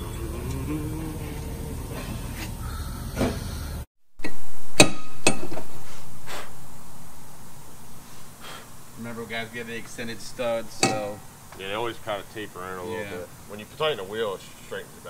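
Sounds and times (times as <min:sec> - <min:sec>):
loud hiss: 0:04.2 - 0:15.0.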